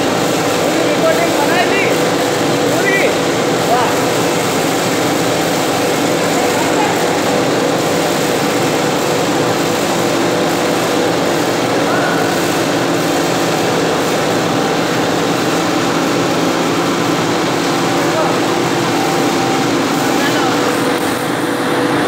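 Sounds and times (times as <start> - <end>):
production line machine drone: 0.0 - 22.0.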